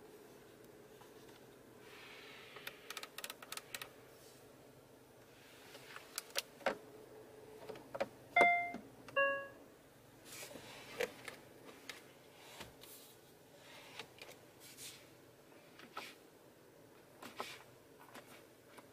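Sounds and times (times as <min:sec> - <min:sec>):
short electronic chimes: 0:08.4 - 0:09.6.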